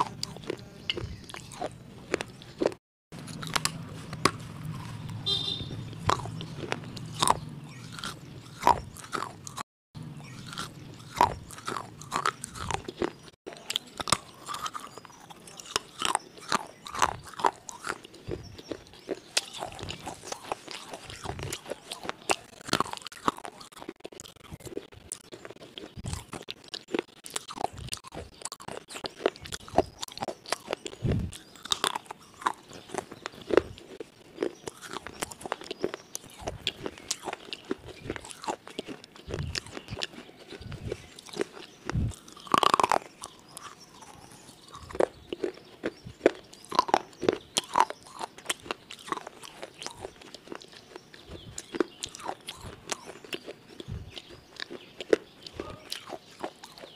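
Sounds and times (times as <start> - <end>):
crunchy food chewing: 0.0 - 56.9
wet mouth sounds: 10.2 - 56.9.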